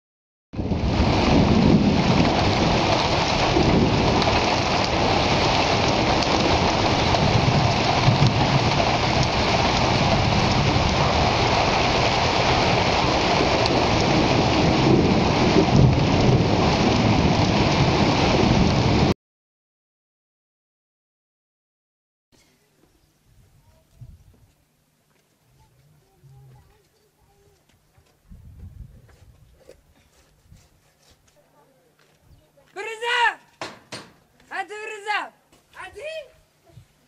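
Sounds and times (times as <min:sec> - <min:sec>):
heavy rain pouring: 0:00.6 - 0:19.2
thunder rumbling: 0:00.6 - 0:19.2.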